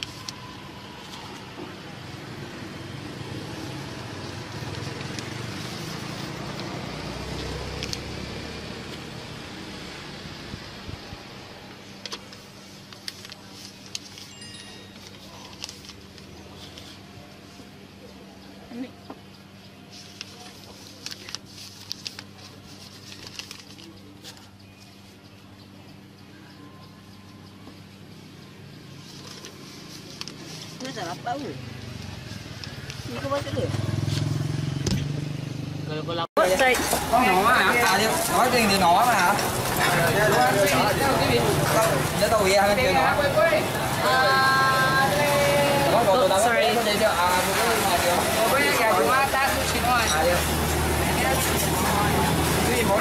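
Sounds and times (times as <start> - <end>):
road traffic passing: 0.0 - 22.8, 27.5 - 53.0
paper and leaf crinkling: 4.5 - 8.0, 12.0 - 17.7, 19.9 - 25.2, 28.9 - 34.3, 36.4 - 53.0.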